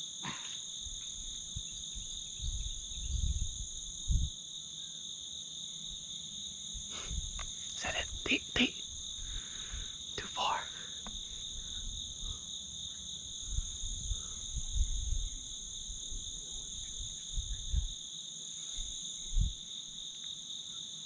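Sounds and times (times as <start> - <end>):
insect chorus drone: 0.0 - 21.0.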